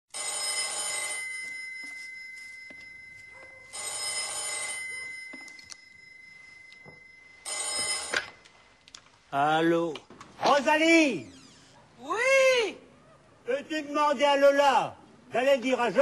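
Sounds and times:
telephone ringing: 0.1 - 8.7.

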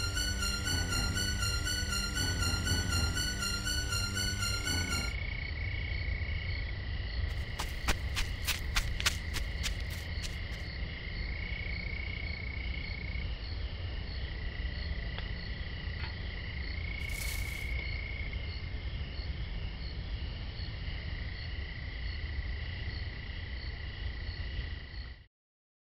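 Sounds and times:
low rumble: 0.0 - 5.2
crickets chirping: 0.0 - 25.2.

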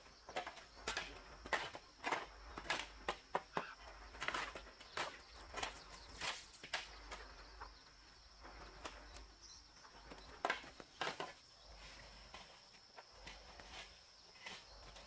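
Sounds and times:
sharp rustles and knocks: 4.1 - 7.3.

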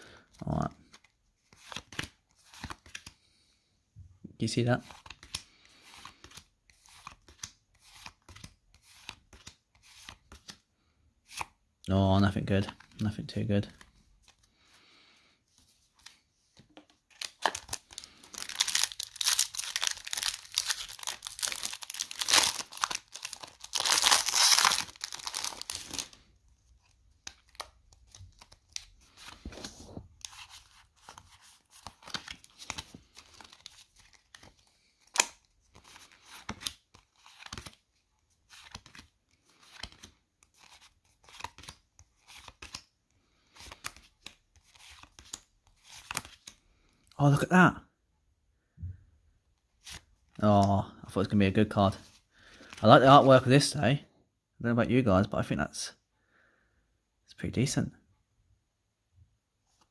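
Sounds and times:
cards clicking and rustling: 0.8 - 3.3, 4.8 - 10.6, 16.0 - 26.2, 30.3 - 37.8, 38.5 - 42.9, 43.5 - 46.6
foil wrapper tearing and crinkling: 17.3 - 26.1.

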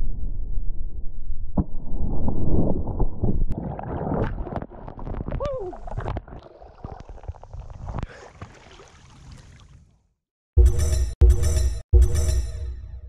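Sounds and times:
water splashing and gurgling: 3.5 - 9.9.

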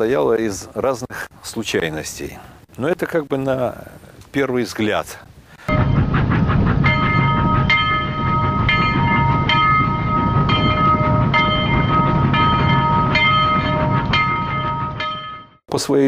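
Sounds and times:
train rumbling: 5.6 - 15.6
ringing tones: 5.7 - 6.2, 6.8 - 15.6.

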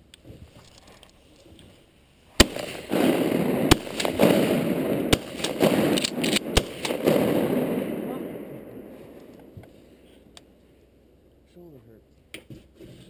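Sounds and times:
shotgun blasts: 2.4 - 9.9.

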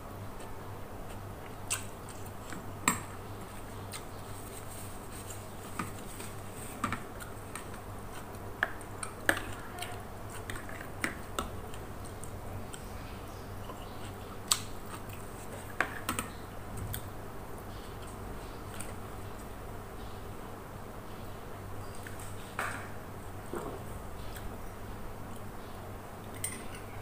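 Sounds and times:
faint low hum: 0.0 - 27.0.

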